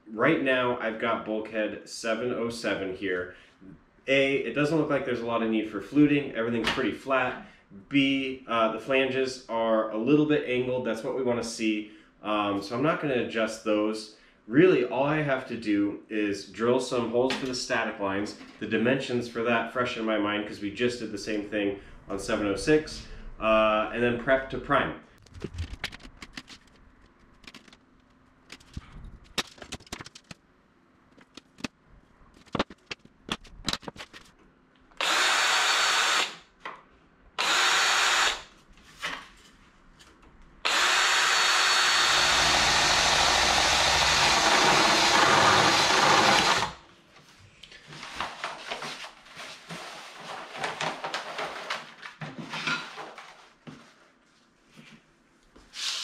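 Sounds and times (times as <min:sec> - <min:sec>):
cordless drill drilling metal: 0:35.0 - 0:36.4, 0:37.4 - 0:38.5, 0:40.6 - 0:46.8
rustling: 0:47.1 - 0:54.9.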